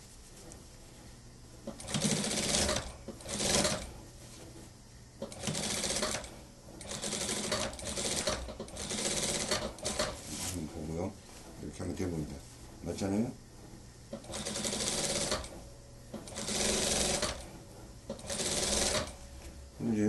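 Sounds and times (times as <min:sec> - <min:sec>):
sewing machine stitching: 0:01.7 - 0:03.9, 0:05.2 - 0:10.2, 0:14.2 - 0:15.6, 0:16.2 - 0:17.5, 0:18.1 - 0:19.2.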